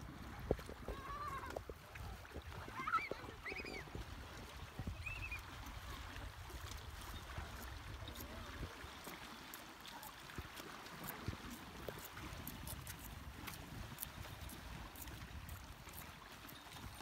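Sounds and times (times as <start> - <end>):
wind rumbling on microphone: 0.0 - 9.0
water lapping against rocks: 0.0 - 17.0.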